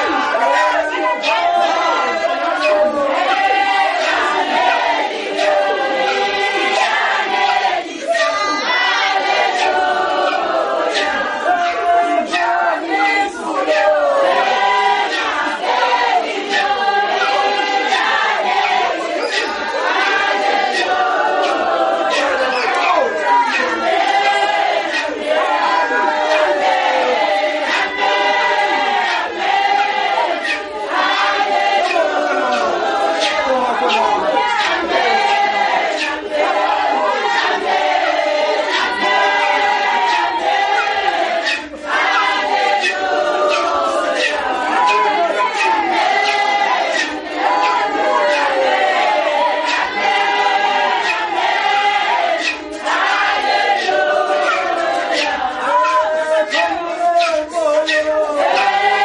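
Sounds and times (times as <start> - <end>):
crowd singing in chorus: 0.0 - 59.0.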